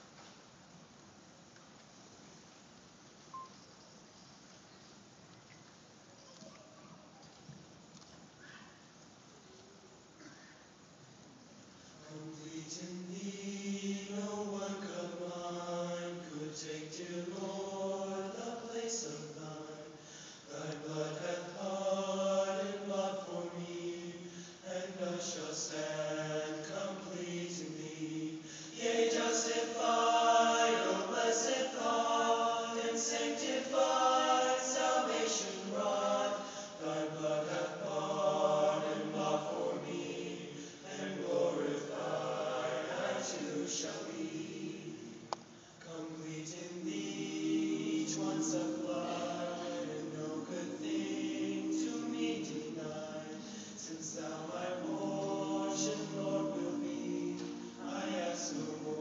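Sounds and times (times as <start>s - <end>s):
male choir singing a hymn: 12.0s - 59.0s.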